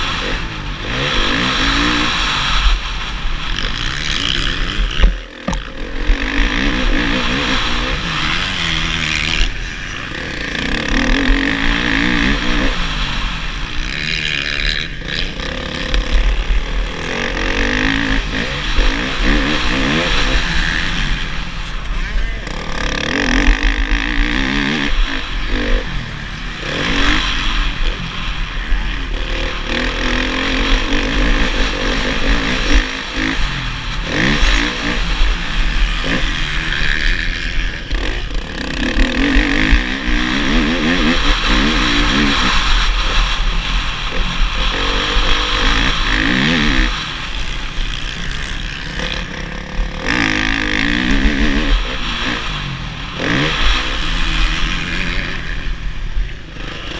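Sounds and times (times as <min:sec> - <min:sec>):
motocross bike engine revving: 0:00.0 - 0:56.9.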